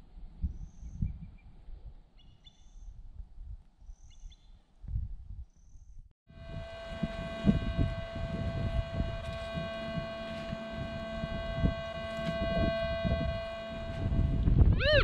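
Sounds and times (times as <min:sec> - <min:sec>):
multi-tone whine: 0:06.3 - 0:15.0.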